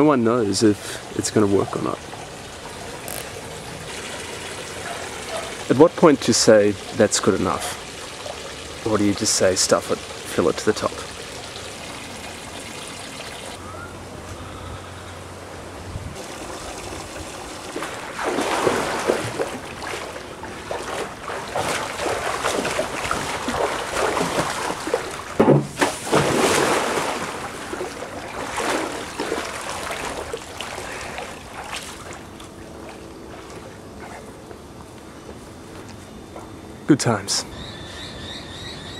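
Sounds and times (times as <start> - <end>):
steady water sound: 0.0 - 13.6, 15.2 - 34.5
water splashing in pool: 0.9 - 13.6, 16.2 - 33.8.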